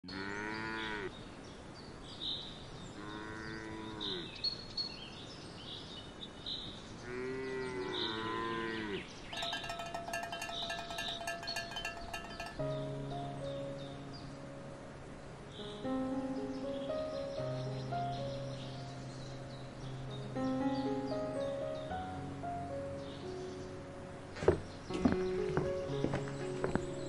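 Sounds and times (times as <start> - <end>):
birds chirping: 9.0 - 12.8
light music with ticking beat: 9.4 - 12.7.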